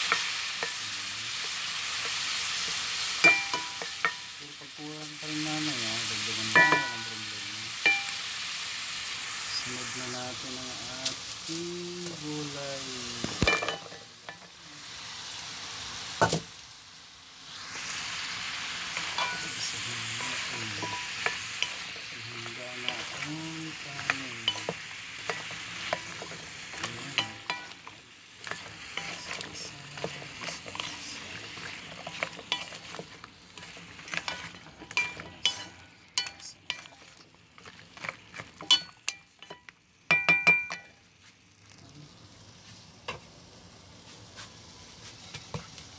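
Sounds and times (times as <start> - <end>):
vegetables sizzling in oil: 0.0 - 45.9
wooden spatula scraping pot: 18.9 - 39.6.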